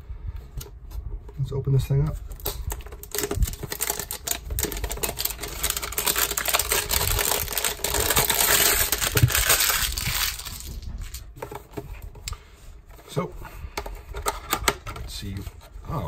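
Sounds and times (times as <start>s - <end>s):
cardboard box crackling and rustling: 2.2s - 12.1s.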